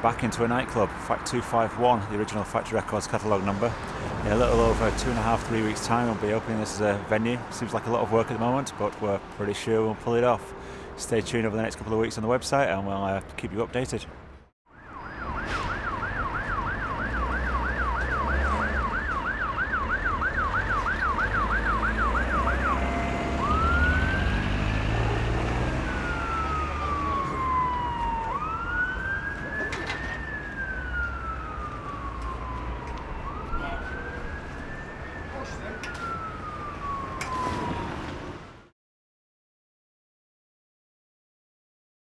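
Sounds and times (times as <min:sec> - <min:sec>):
emergency vehicle siren: 0:10.2 - 0:11.0, 0:14.7 - 0:38.7.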